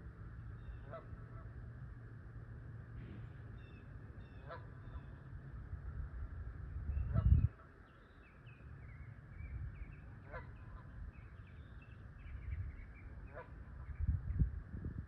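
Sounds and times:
waterfowl honking: 0.6s - 1.5s, 3.6s - 5.2s, 7.0s - 7.8s, 10.2s - 10.9s, 13.2s - 13.8s.

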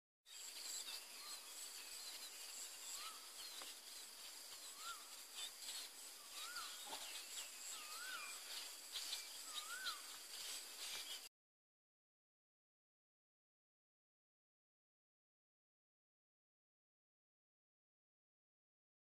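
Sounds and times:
birds chirping: 0.3s - 11.3s
insects droning: 0.3s - 11.3s
bird whistling: 9.4s - 10.0s.

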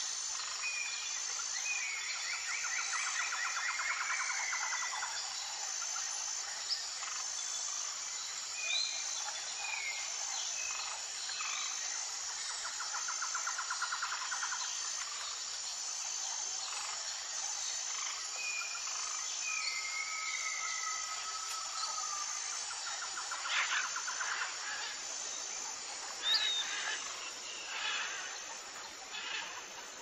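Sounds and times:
high insect chirp: 0.0s - 30.0s.

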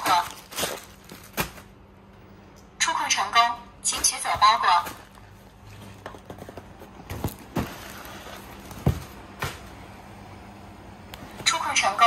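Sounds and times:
faint steady hum: 0.0s - 12.0s
cardboard parcel knocking: 6.0s - 9.8s.

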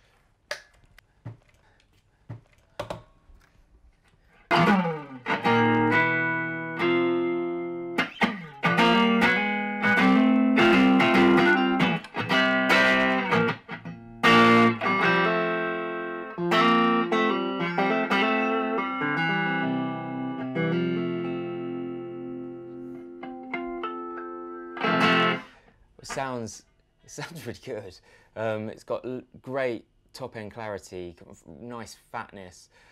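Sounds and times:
electric guitar strumming chords: 4.5s - 25.5s.

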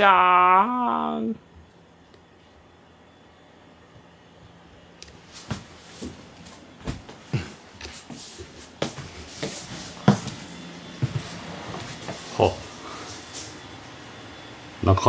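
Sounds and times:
footsteps on floor: 5.3s - 13.6s.

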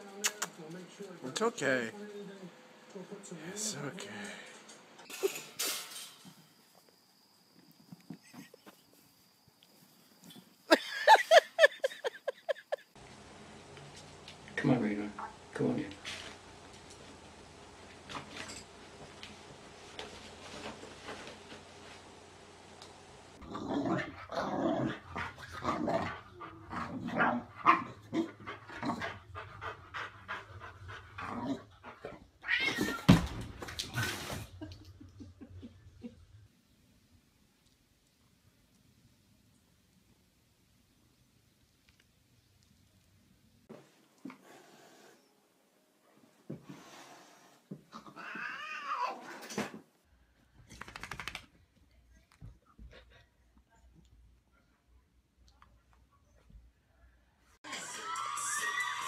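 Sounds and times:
pet's wavering meow-like cry: 32.4s - 33.2s, 48.2s - 49.2s.

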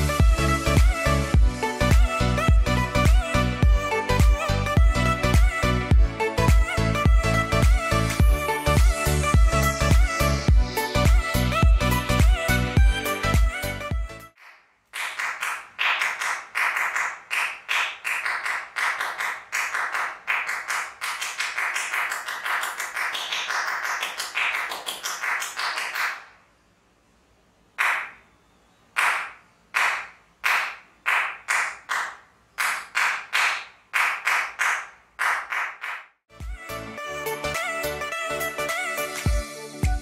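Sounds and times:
hands clapping: 14.3s - 26.4s, 27.8s - 28.2s, 29.0s - 36.2s.

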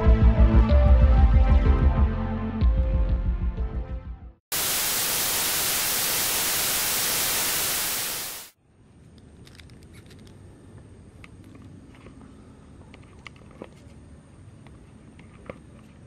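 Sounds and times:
thin high whine: 4.5s - 8.6s
tv static hiss: 4.5s - 8.6s.

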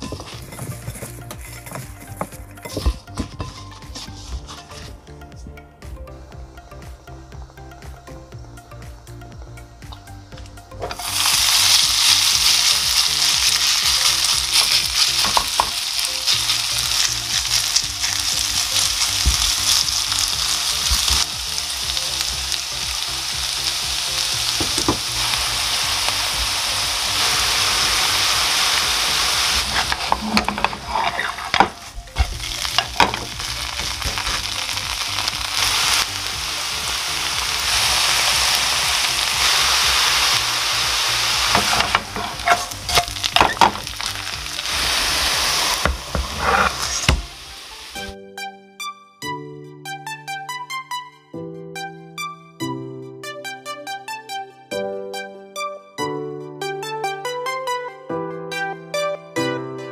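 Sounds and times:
vegetables sizzling in oil: 10.9s - 48.1s.

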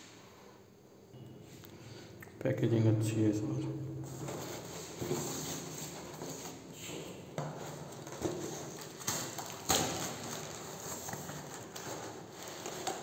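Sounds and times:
packaging rustling and crinkling: 4.2s - 13.0s.

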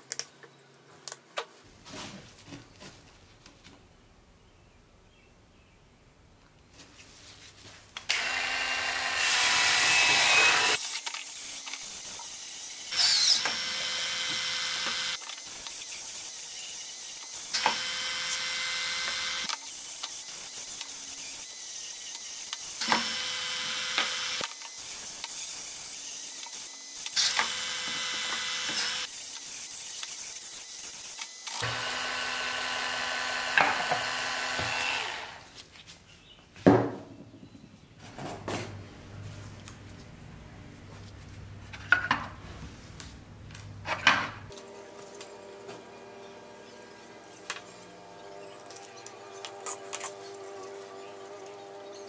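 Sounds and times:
power scrubber motor whine: 31.6s - 35.4s.

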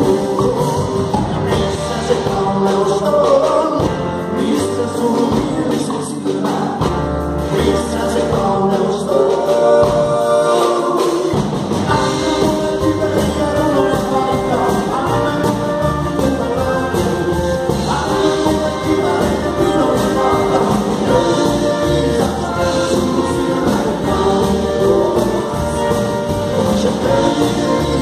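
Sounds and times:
acoustic guitar: 0.0s - 28.0s
man singing: 0.0s - 28.0s
upright double bass: 0.0s - 28.0s.

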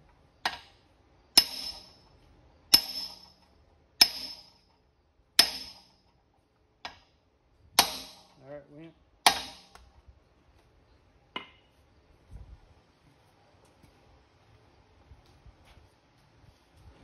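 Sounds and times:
hammer striking metal: 1.4s - 2.0s, 2.7s - 3.4s, 4.0s - 4.6s, 5.4s - 6.0s, 7.8s - 8.4s, 9.2s - 9.8s.

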